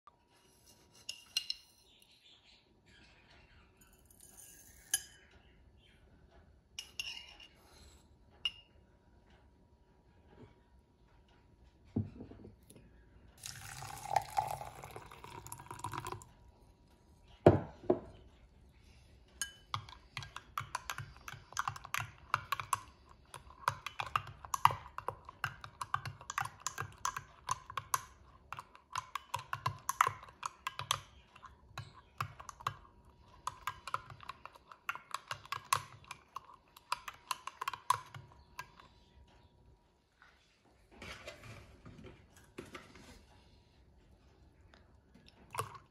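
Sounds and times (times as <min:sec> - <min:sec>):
spoon clinking in a glass: 0:03.8 - 0:05.3, 0:06.8 - 0:07.6, 0:13.4 - 0:16.2, 0:19.4 - 0:32.8
liquid pouring into a glass: 0:13.4 - 0:16.3.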